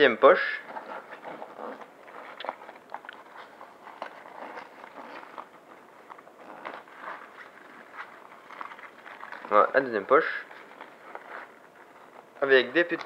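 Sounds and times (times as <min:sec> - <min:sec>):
fabric rustling: 0:00.3 - 0:13.0
zipper and buckle clicks: 0:00.7 - 0:03.3, 0:03.9 - 0:05.6.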